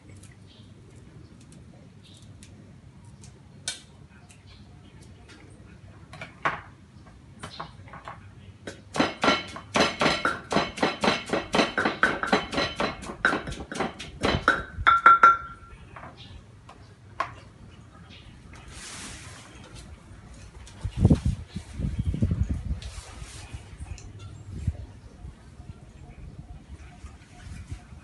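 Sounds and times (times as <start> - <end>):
wooden pestle pounding in clay mortar: 8.7 - 15.6.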